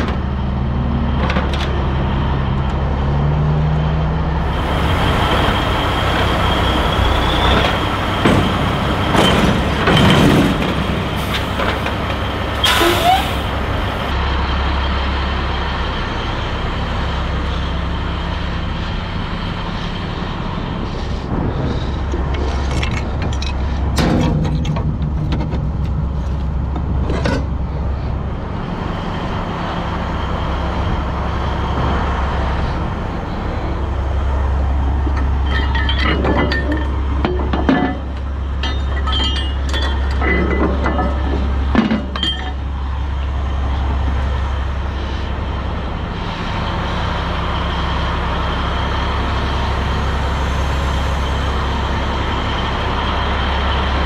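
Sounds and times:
diesel engine idling: 0.0s - 24.0s, 24.6s - 54.0s
chain and metal hooks clanking: 35.4s - 41.4s.

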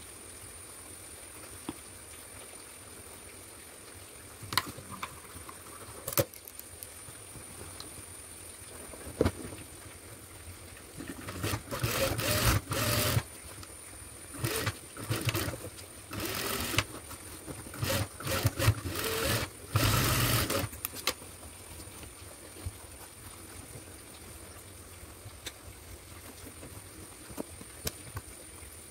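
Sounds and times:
sewing machine stitching: 11.0s - 13.2s, 14.4s - 16.9s, 17.7s - 20.8s.

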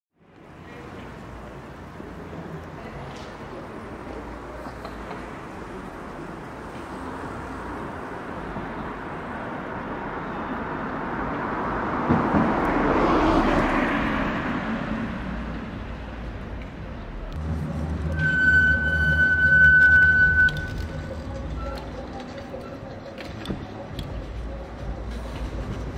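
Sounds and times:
street traffic noise: 0.1s - 25.9s
vehicle passing by: 10.8s - 18.2s
music: 17.4s - 25.9s.

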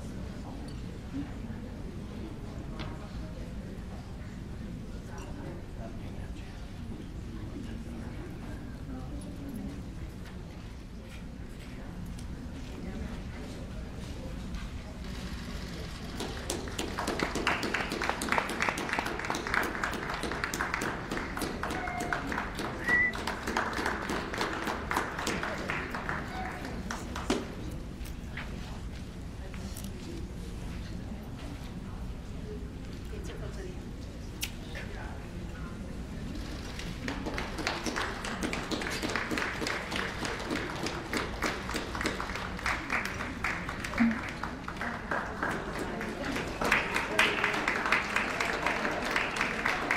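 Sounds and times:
audience clapping: 16.0s - 27.7s, 36.7s - 49.9s.

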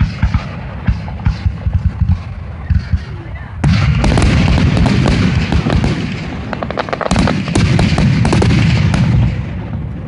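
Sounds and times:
fireworks booming and crackling: 0.0s - 10.0s.

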